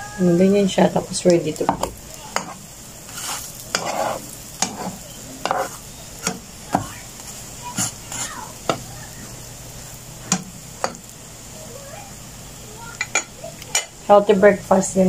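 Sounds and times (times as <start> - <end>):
pancakes sizzling in a frying pan: 0.0 - 15.0
spatula tapping and scraping pan: 1.6 - 7.0, 7.7 - 8.9, 10.2 - 11.1, 13.0 - 14.0.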